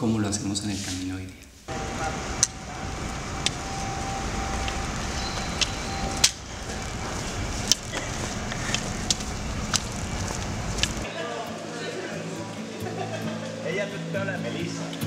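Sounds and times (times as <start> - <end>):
faint steady hum: 1.7 - 11.1
low street rumble: 1.7 - 11.1.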